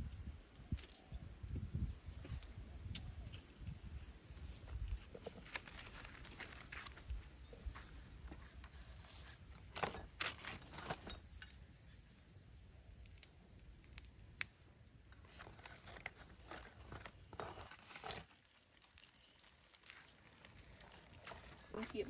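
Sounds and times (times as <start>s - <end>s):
clicks and rustles handling fish: 4.7s - 11.3s, 15.2s - 22.0s.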